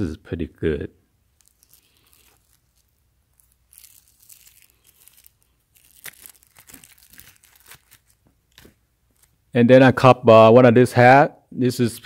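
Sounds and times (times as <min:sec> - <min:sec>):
plastic wrapping crinkling: 0:01.2 - 0:09.5.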